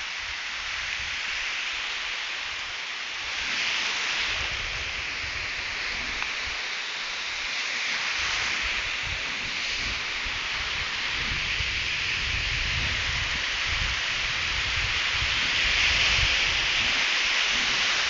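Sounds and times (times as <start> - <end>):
surf breaking on a beach: 0.0 - 18.0.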